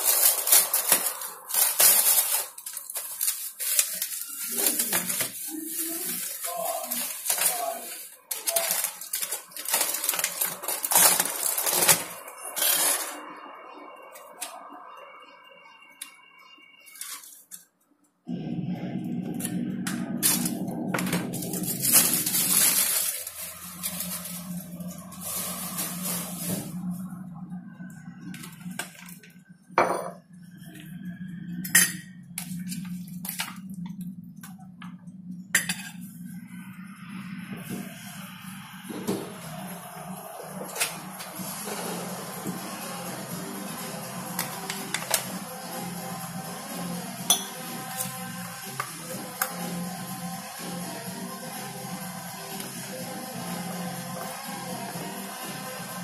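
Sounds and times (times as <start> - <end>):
aluminium foil crinkling: 0.0 - 13.3, 20.2 - 27.0
steady low hum: 18.3 - 56.0.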